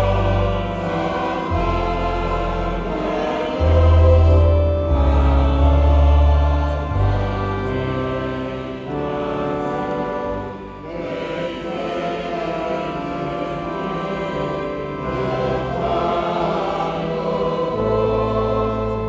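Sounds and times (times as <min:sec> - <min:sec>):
deep held bass notes: 0:00.0 - 0:10.8
choir singing: 0:00.0 - 0:19.0
man singing a hymn: 0:00.0 - 0:19.0.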